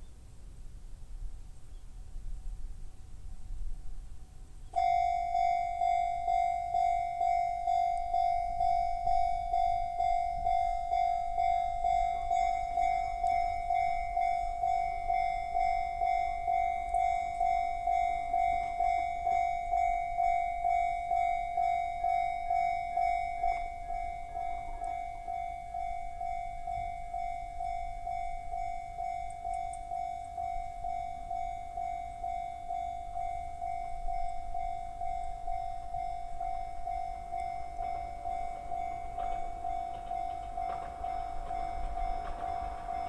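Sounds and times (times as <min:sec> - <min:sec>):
level crossing bell ringing: 0:04.8 - 0:43.0.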